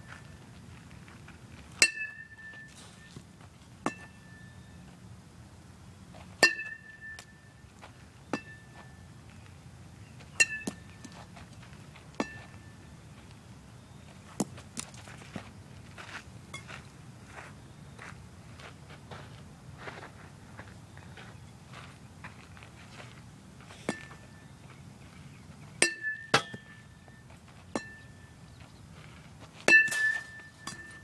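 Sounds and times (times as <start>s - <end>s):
baseball bat pinging on balls: 1.8s - 3.2s, 3.8s - 4.9s, 6.3s - 9.4s, 10.0s - 12.9s, 23.7s - 24.4s, 25.7s - 28.6s, 29.6s - 31.0s.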